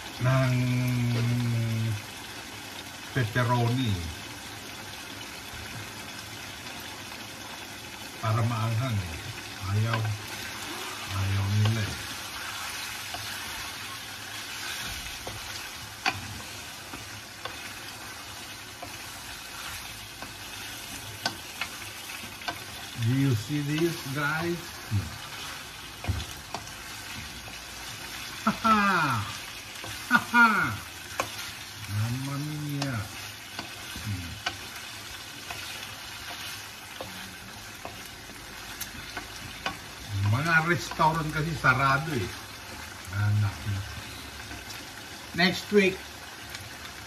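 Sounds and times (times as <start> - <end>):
food sizzling in a frying pan: 0.0 - 47.0
wooden spoon knocking a pan: 23.7 - 28.4.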